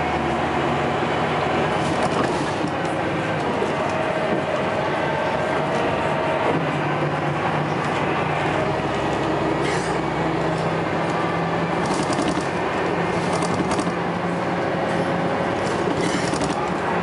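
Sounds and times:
bus engine droning: 0:00.0 - 0:17.0.

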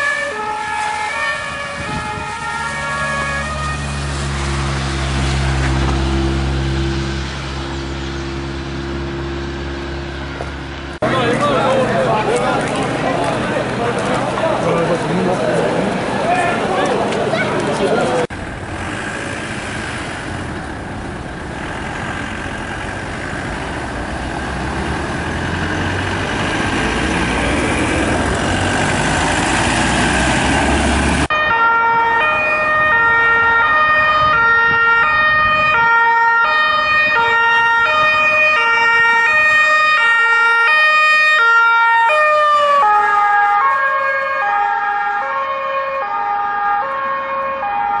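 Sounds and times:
two-tone police siren: 0:00.0 - 0:06.7, 0:31.2 - 0:48.0
loud dense noisy din: 0:11.0 - 0:20.3.

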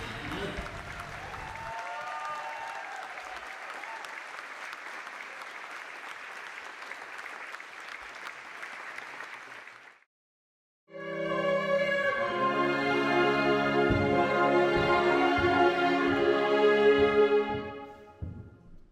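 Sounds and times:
audience applauding: 0:00.0 - 0:10.1.

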